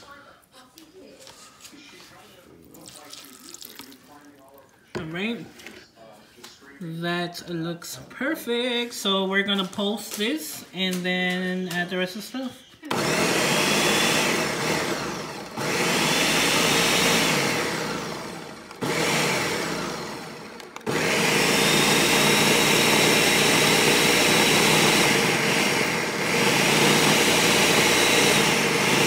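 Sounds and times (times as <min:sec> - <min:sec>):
blender motor whining: 0:12.8 - 0:29.0.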